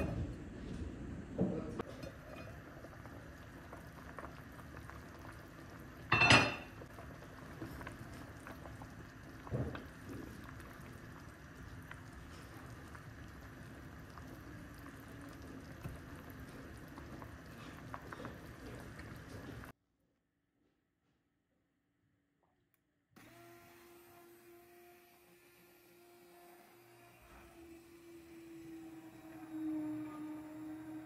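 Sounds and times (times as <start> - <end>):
soup bubbling in a pot: 1.8 - 19.7, 27.6 - 31.0.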